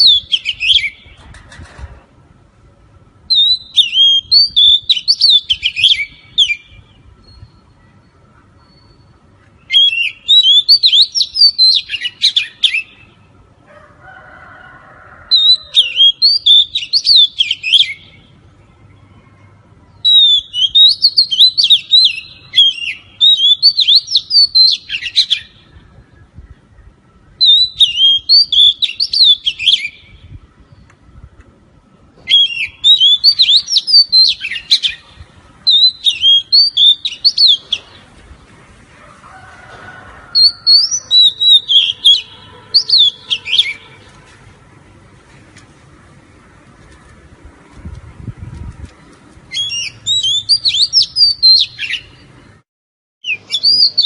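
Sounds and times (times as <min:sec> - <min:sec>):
bird singing whistled phrases: 0:00.0 - 0:01.0, 0:03.3 - 0:07.7, 0:09.7 - 0:13.1, 0:15.3 - 0:18.2, 0:20.0 - 0:25.6, 0:27.4 - 0:30.1, 0:32.3 - 0:35.0, 0:35.7 - 0:38.0, 0:40.4 - 0:43.9, 0:49.5 - 0:52.1, 0:53.2 - 0:54.0.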